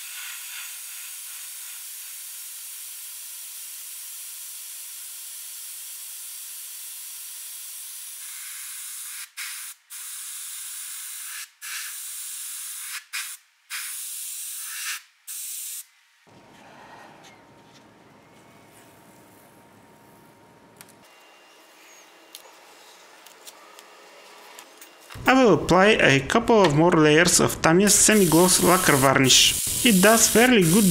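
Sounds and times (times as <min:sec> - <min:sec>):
airbrush spraying hiss: 0:00.0 - 0:06.7, 0:07.3 - 0:15.9, 0:27.9 - 0:30.9.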